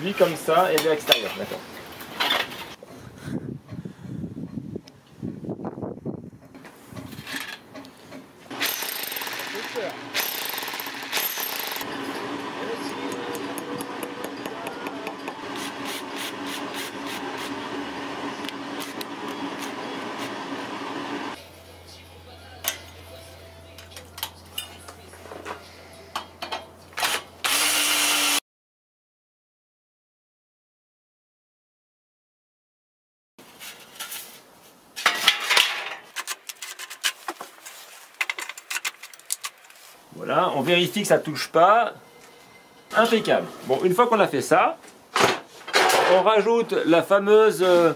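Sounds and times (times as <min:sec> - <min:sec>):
metal clinks and rattles: 0:08.6 - 0:11.9.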